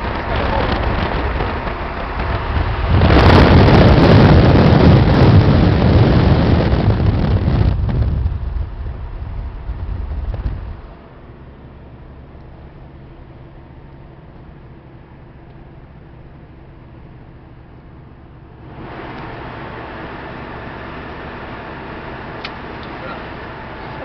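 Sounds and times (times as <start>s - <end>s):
wind rushing over microphone: 0.0s - 11.0s
car road noise: 0.0s - 24.0s.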